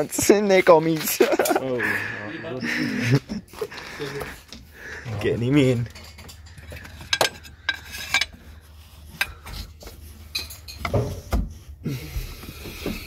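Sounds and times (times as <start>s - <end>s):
metal clinks and scrapes: 5.2s - 11.3s.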